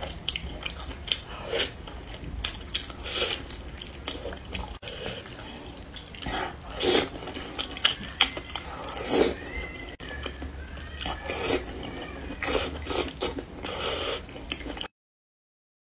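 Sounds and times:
person slurping noodles: 2.8s - 3.5s, 4.8s - 8.0s, 8.6s - 9.4s, 11.0s - 14.4s.

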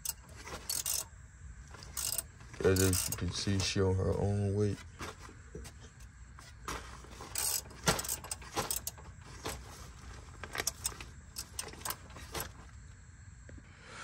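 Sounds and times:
light metallic clicks and clinks: 1.8s - 3.8s.

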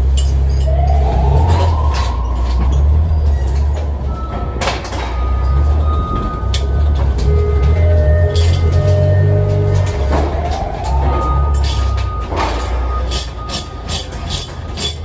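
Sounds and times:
steel chains rattling: 0.0s - 1.0s, 4.6s - 15.0s
low rumble: 0.0s - 13.5s
sharp metallic clank: 8.2s - 15.0s.

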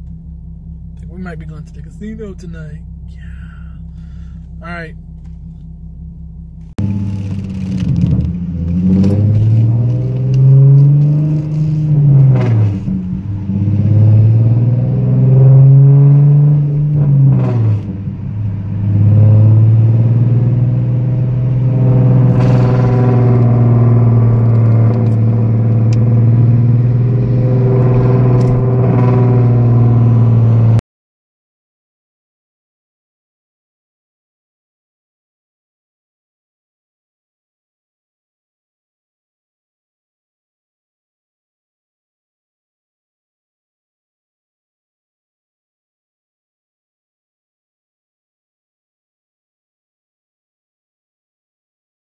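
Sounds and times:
car engine and exhaust from cabin: 0.0s - 30.8s.

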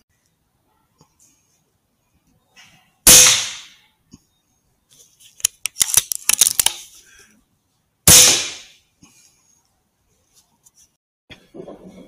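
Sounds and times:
air rifle shot: 3.1s - 3.8s, 8.1s - 8.8s
sharp clicks: 5.4s - 6.8s.

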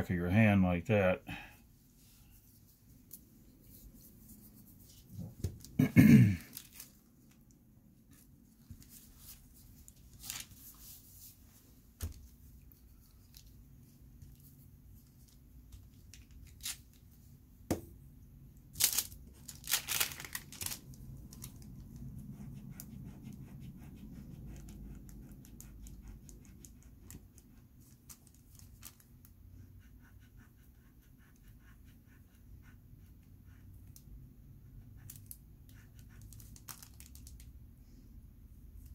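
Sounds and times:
tissue paper rustling: 6.5s - 7.0s, 8.5s - 13.6s, 18.8s - 21.7s
pencil scratching on paper: 21.9s - 27.6s, 29.5s - 34.0s, 34.6s - 36.6s.

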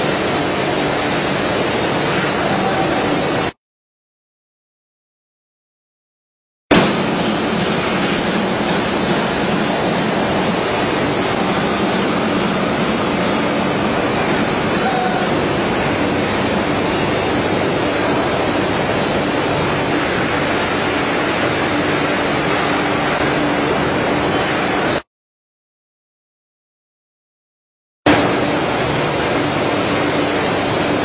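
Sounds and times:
veneer splicer machine running: 6.7s - 25.0s.

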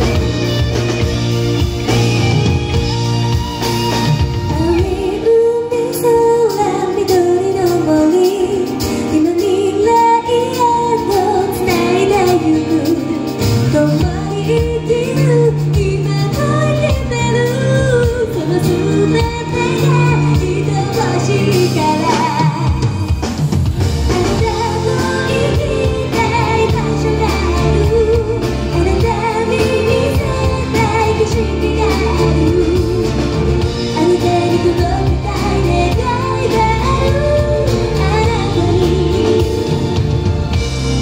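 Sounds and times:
bass: 0.0s - 41.0s
drums: 0.0s - 41.0s
electric guitar: 0.0s - 41.0s
keyboards: 0.0s - 41.0s
woman singing: 1.8s - 23.2s, 24.0s - 40.3s.

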